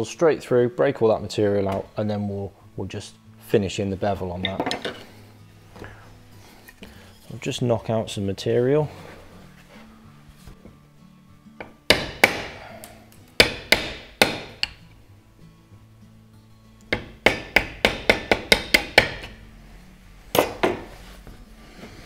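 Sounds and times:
mallet striking wood chisel: 0:11.6 - 0:14.8, 0:16.8 - 0:19.4, 0:20.3 - 0:20.9.

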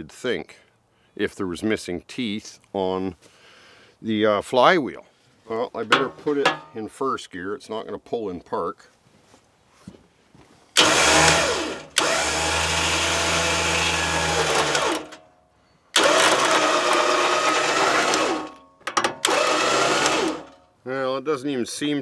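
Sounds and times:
winch motor running: 0:10.8 - 0:15.2, 0:16.0 - 0:20.6.

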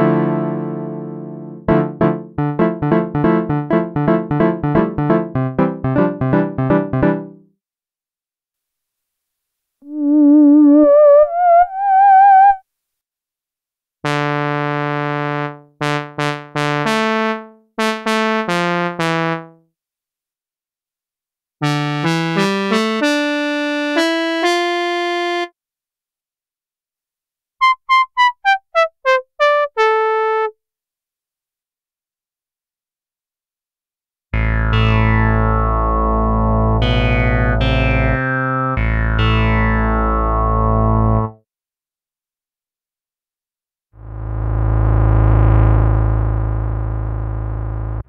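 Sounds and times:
synthesizer chords: 0:00.0 - 0:07.4, 0:34.4 - 0:41.3
synthesizer lead line with vibrato: 0:00.0 - 0:07.4, 0:34.4 - 0:41.3.

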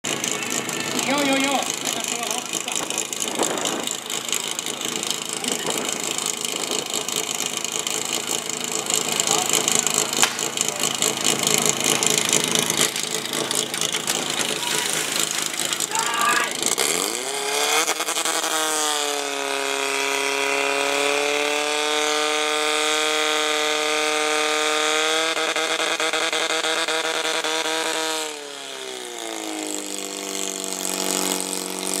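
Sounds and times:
pump engine revving: 0:00.0 - 0:32.0
people shouting: 0:14.4 - 0:16.6.

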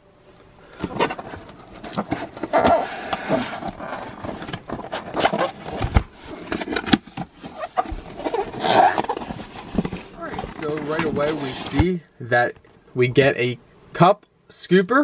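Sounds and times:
cardboard scraping and rustling: 0:00.7 - 0:12.0.

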